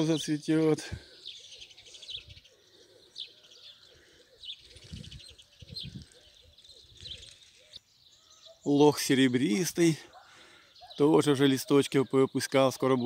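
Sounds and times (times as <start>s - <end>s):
songbirds chirping: 0.0s - 13.0s
pigeons cooing: 1.1s - 8.6s.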